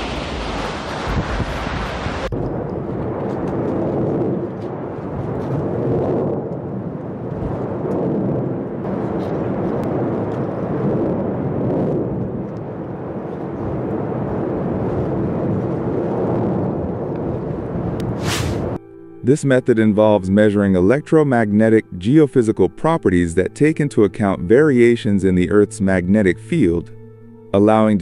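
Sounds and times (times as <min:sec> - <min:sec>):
volcanic eruption rushing rumble: 0:00.0 - 0:18.8.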